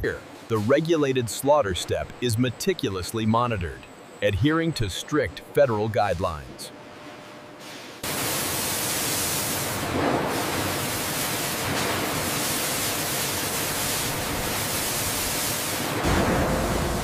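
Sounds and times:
water spraying from nozzles: 8.0s - 17.0s.

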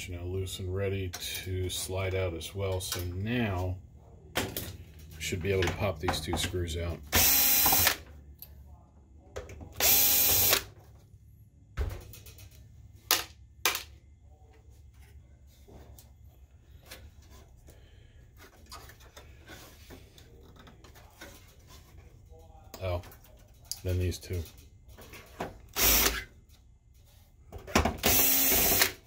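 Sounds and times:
cordless drill spinning screws: 7.2s - 8.0s, 9.8s - 10.6s, 25.8s - 26.2s, 28.0s - 29.0s.

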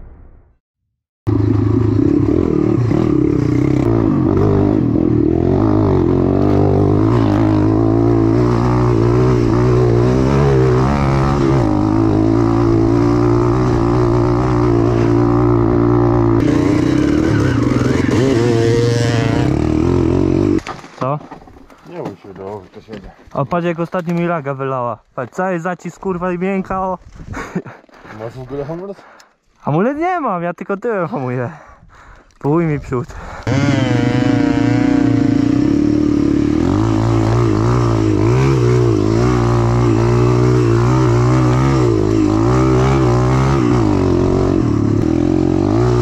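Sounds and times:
motorcycle engine revving: 1.3s - 20.7s, 33.4s - 46.0s.

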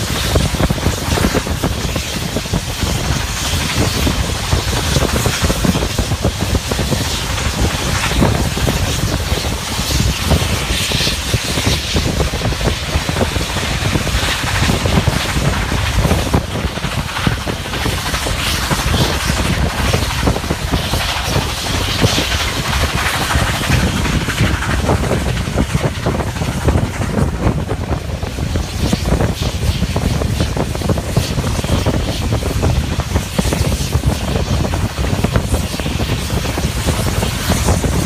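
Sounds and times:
train rumbling on track: 0.0s - 38.0s
wind buffeting microphone: 0.0s - 38.0s.

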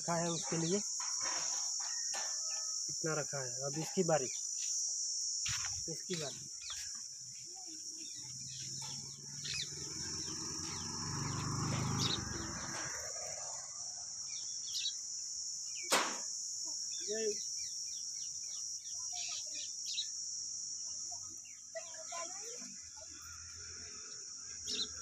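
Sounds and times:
birds chirping: 0.0s - 2.0s, 5.4s - 16.0s, 16.8s - 20.2s, 24.2s - 25.0s
high-pitched insect drone: 0.0s - 25.0s.

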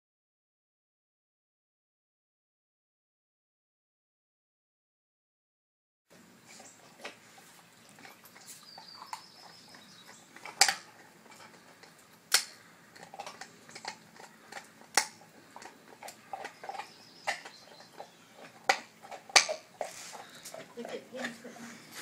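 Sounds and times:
dog crunching on a bone: 6.5s - 22.0s.

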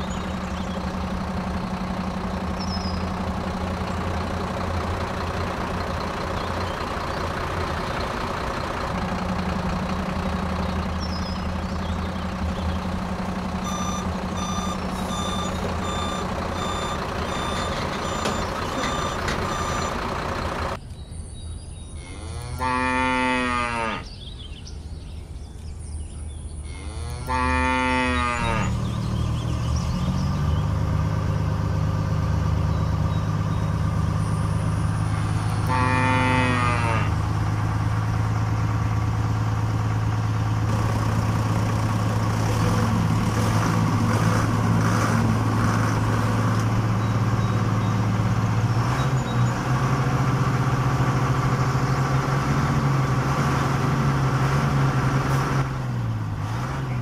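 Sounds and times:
vehicle engine running: 0.0s - 20.8s, 26.6s - 57.0s
cow mooing: 22.0s - 24.1s, 26.7s - 28.8s, 35.6s - 37.2s.

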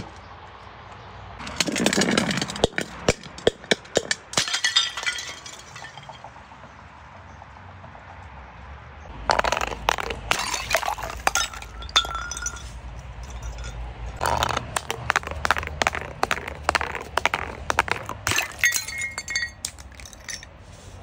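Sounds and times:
glass bottles breaking: 1.5s - 6.3s, 9.3s - 20.5s.

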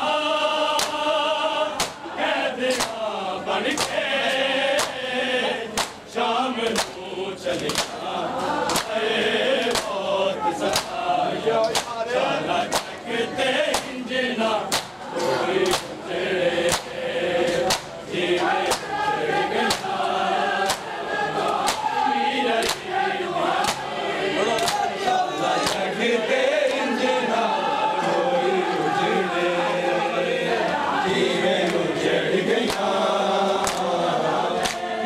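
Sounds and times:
men chanting together: 0.0s - 35.0s
hands slapping chests: 0.7s - 1.1s, 1.8s - 3.0s, 3.7s - 5.0s, 5.7s - 7.0s, 7.6s - 8.0s, 8.6s - 9.0s, 9.6s - 10.0s, 10.6s - 11.0s, 11.6s - 12.0s, 12.7s - 13.0s, 13.7s - 14.0s, 14.7s - 15.0s, 15.6s - 16.0s, 16.6s - 17.0s, 17.6s - 19.0s, 19.6s - 22.0s, 22.6s - 22.9s, 23.6s - 25.0s, 25.6s - 25.9s, 32.6s - 34.0s, 34.6s - 35.0s.

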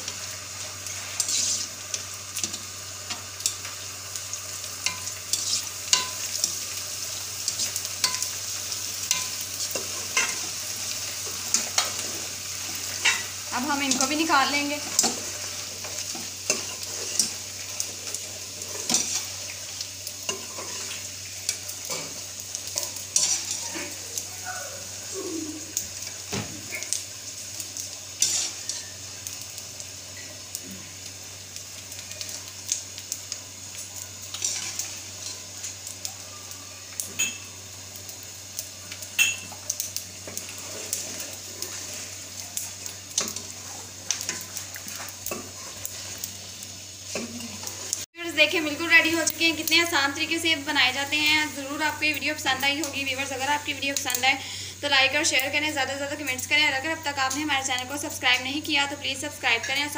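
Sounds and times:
crackers sizzling in hot fat: 0.0s - 59.9s
wire skimmer scraping metal pan: 1.2s - 1.8s.

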